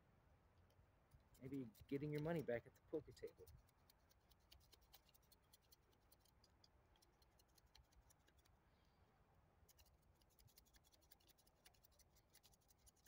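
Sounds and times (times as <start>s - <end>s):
knife shaving a stick: 1.2s - 8.6s, 9.7s - 13.0s.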